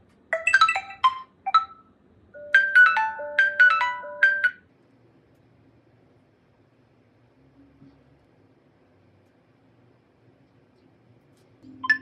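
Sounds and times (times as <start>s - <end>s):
marimba ringtone melody: 2.4s - 4.6s.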